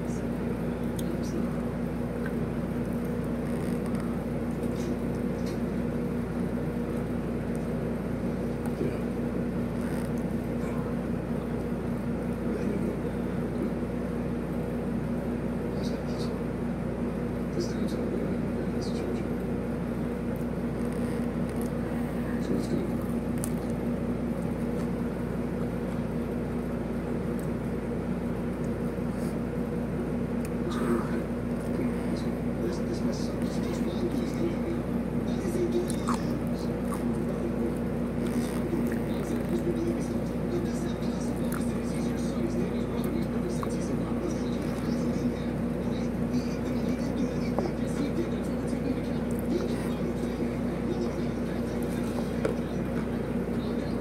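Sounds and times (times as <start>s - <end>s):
steady low hum: 0.0s - 54.0s
chewing mouth sounds: 35.8s - 37.4s, 41.3s - 41.8s.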